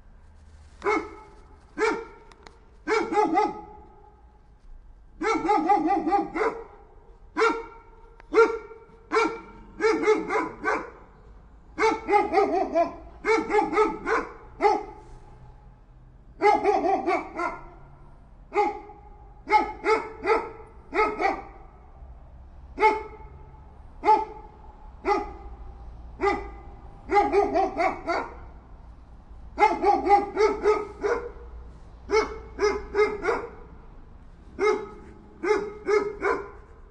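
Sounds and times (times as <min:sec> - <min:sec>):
dog barking: 0:00.8 - 0:04.2, 0:05.2 - 0:11.2, 0:11.8 - 0:15.0, 0:16.4 - 0:17.9, 0:18.5 - 0:21.8, 0:22.8 - 0:25.6, 0:26.2 - 0:28.6, 0:29.6 - 0:33.8, 0:34.5 - 0:36.8.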